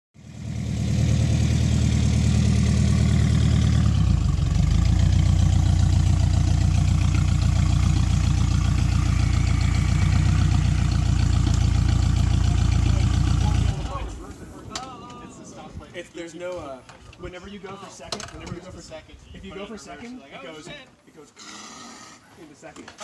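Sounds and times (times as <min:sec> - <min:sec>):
engine idling: 0:00.2 - 0:14.9.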